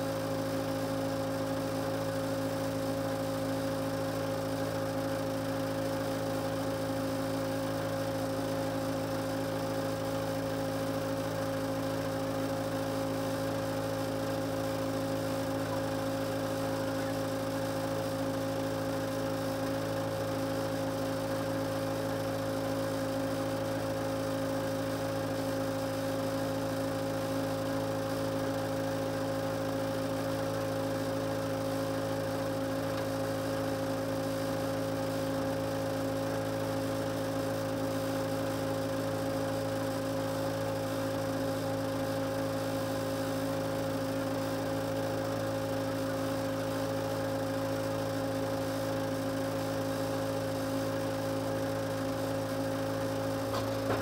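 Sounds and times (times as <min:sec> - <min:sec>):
backhoe engine idling: 0:53.4 - 0:54.0.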